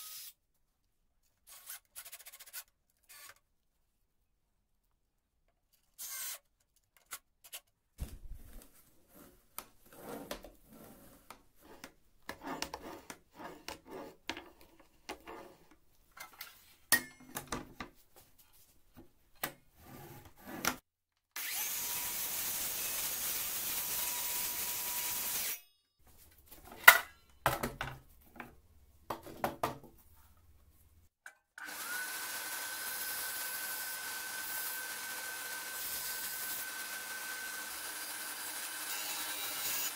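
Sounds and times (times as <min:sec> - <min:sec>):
cordless circular saw whining: 0:06.0 - 0:06.4, 0:21.4 - 0:25.6, 0:31.6 - 0:39.9.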